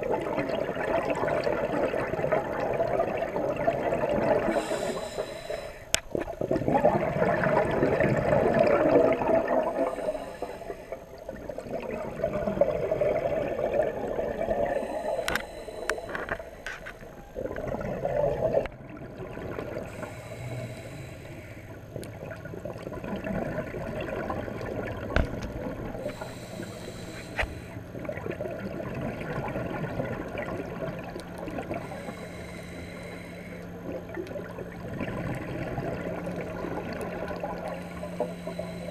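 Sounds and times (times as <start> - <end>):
exhaled bubbles underwater: 0.0 - 38.9
faint low steady hum: 0.0 - 38.9
regulator hissing on inhale: 4.2 - 6.4, 8.0 - 11.8, 14.4 - 17.5, 19.8 - 21.9, 25.9 - 27.8, 31.7 - 34.0, 37.4 - 38.9.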